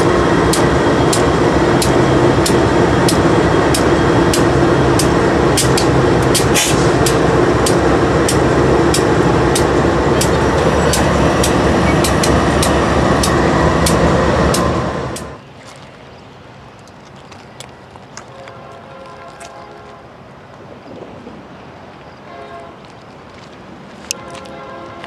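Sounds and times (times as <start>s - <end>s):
diesel engine drone: 0.0s - 15.4s
train wheels clicking on rail: 0.0s - 15.4s.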